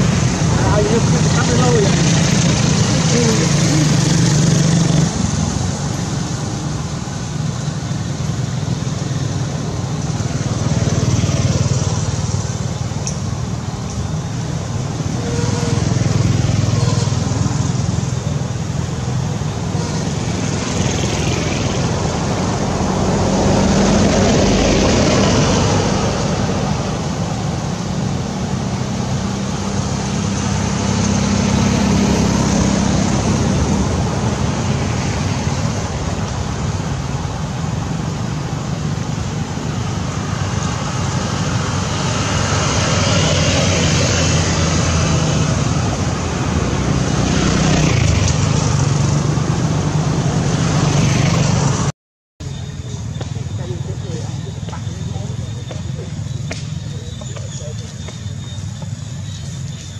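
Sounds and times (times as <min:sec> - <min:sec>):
vehicles passing: 0:00.0 - 0:59.9.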